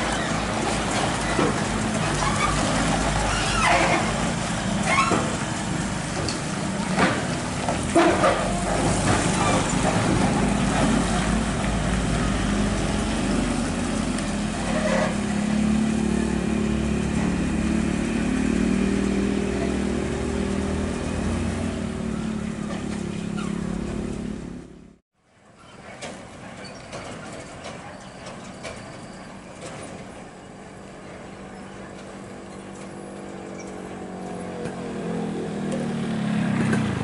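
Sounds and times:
truck diesel engine under load: 0.0 - 25.0, 25.8 - 37.0
motorcycle passing: 8.0 - 24.6, 33.4 - 37.0.

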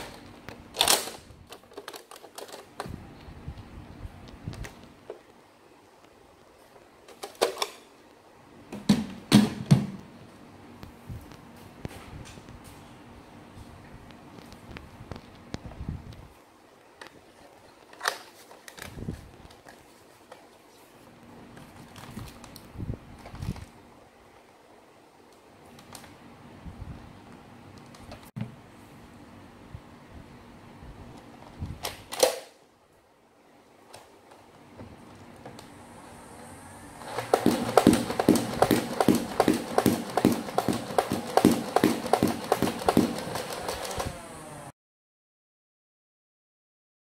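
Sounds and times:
plastic clicks: 0.0 - 2.9
blaster flywheel motors whirring: 35.9 - 44.7
toy blaster firing darts: 37.0 - 44.2.

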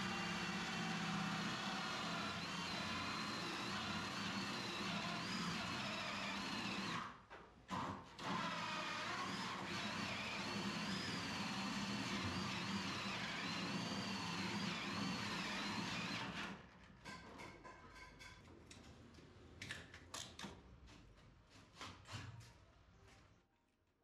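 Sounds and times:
cordless drill boring wood: 0.0 - 7.1, 7.7 - 16.6.

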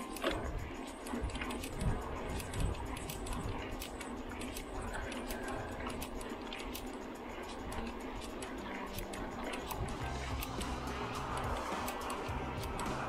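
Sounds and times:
bicycle rattling and ticking: 0.0 - 13.0
low rumble: 9.6 - 13.0.

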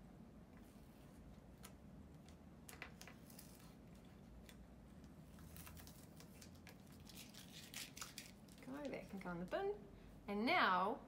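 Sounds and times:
tape crackling as peeled: 1.6 - 9.2.

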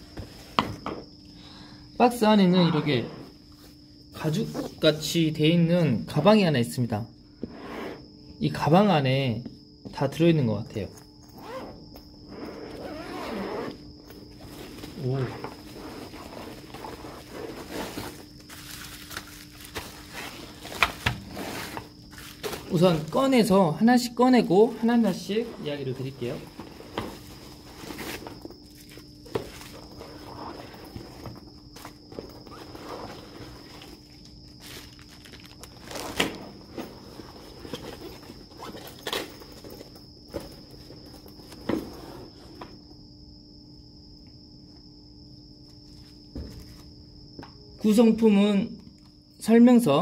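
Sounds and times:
rummaging through soft case: 12.4 - 22.9, 26.3 - 42.6
bubble wrap crinkling: 14.6 - 23.3, 33.6 - 36.4.

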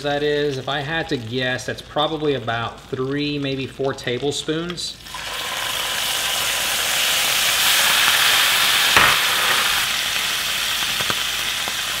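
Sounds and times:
peppers sizzling in oil: 0.0 - 12.0
knock: 9.0 - 9.8.

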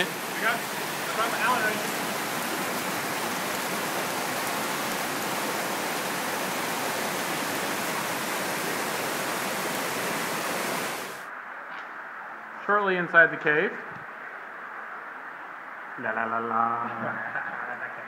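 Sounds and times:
creek running over rocks: 0.0 - 11.3
rain: 0.0 - 18.0.

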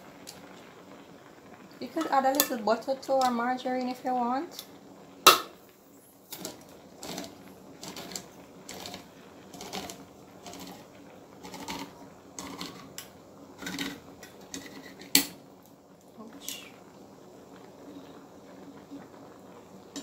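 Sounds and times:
can opener clicking: 6.3 - 15.4.

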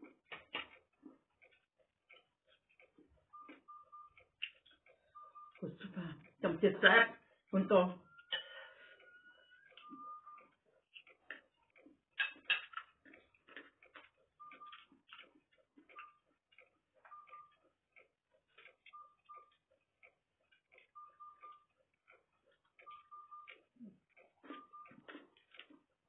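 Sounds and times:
chewing and lip-smacking: 0.0 - 5.6, 8.9 - 26.0.

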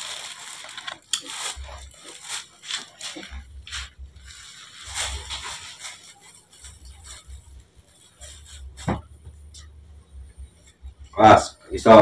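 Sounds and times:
plastic bags crinkling: 0.0 - 9.2.

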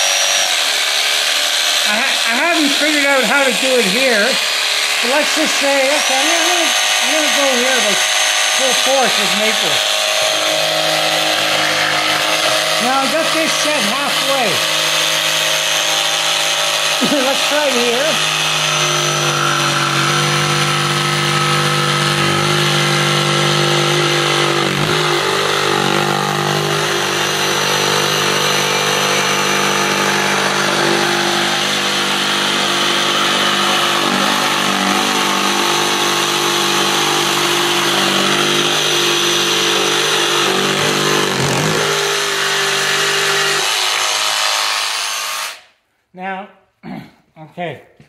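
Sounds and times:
jigsaw cutting wood: 0.0 - 45.7.

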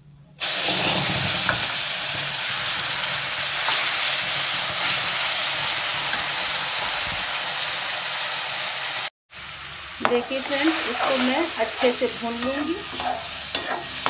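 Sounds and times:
paste sizzling in hot oil: 0.4 - 14.0
metal spatula taps: 10.0 - 10.3, 12.3 - 13.8.

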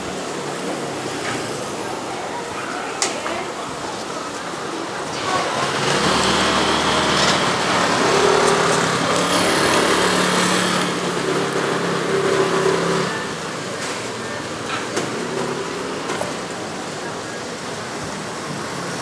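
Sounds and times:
street noise: 0.0 - 19.0
small engine running: 5.2 - 13.4.

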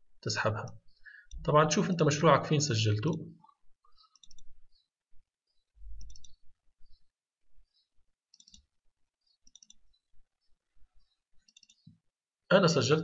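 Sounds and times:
computer mouse clicking: 4.0 - 4.8, 6.0 - 6.4, 8.3 - 8.7, 9.4 - 10.0, 11.4 - 11.9.

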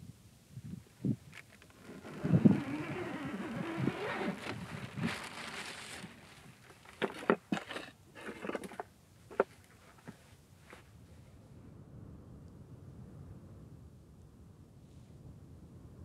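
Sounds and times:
tent fabric rustling: 1.6 - 7.3.

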